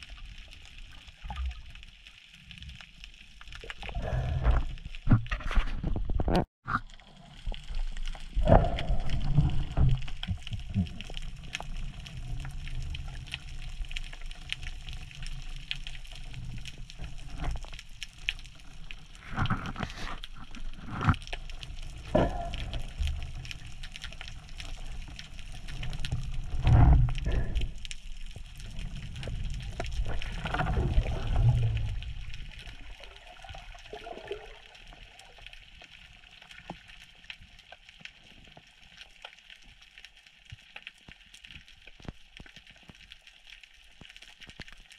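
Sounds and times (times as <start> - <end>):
muffled underwater rush: 3.6 - 5.3, 6.7 - 17.7, 18.5 - 35.1.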